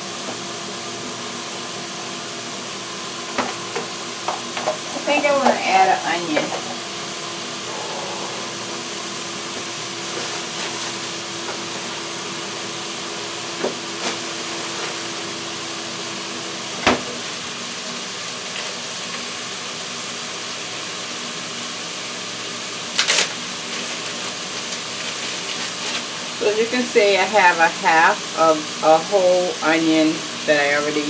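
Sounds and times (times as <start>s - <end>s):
faint steady hum: 7.6s - 9.8s.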